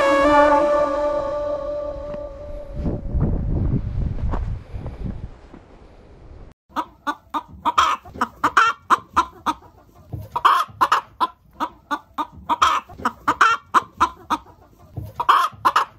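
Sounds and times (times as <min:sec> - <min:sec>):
chicken squawk: 0:06.7 - 0:09.7, 0:10.4 - 0:14.5, 0:15.2 - 0:15.9
chicken clucking: 0:06.7 - 0:15.9.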